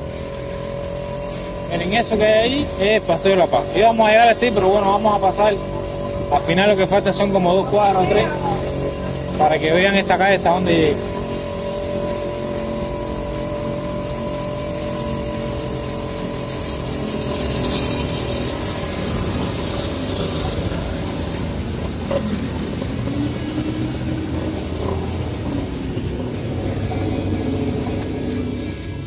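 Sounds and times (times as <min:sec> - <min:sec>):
held tones: 0:00.0 - 0:29.0
motorbike engine running: 0:00.0 - 0:29.0
rush of air and road: 0:10.7 - 0:29.0.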